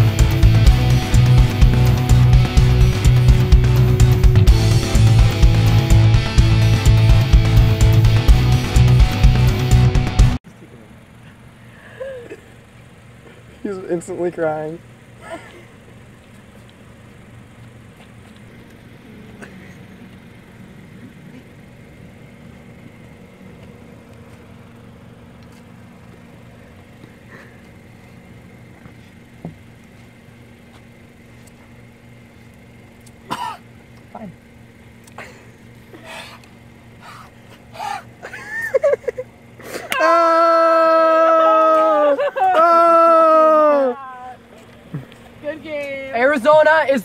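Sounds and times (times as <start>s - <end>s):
steady low hum: 0.0s - 47.0s
person coughing: 12.0s - 12.5s, 15.2s - 15.7s, 33.3s - 33.6s.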